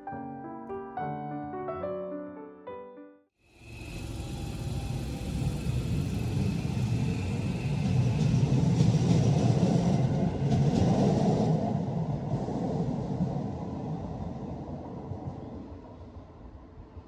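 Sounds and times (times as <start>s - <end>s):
vehicle low rumble: 3.6s - 9.6s.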